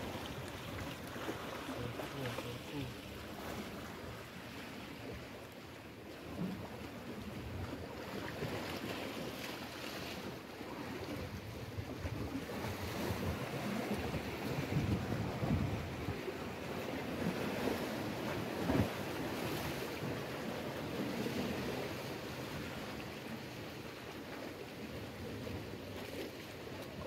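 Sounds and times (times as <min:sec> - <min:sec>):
waves washing against rocks: 0:07.4 - 0:24.1
wind buffeting microphone: 0:11.3 - 0:16.4.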